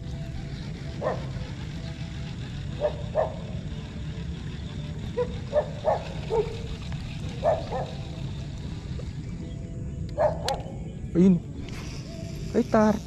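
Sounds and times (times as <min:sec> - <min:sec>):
dog barking: 0:01.0 - 0:01.3, 0:05.2 - 0:06.5, 0:07.4 - 0:08.0, 0:10.2 - 0:10.6.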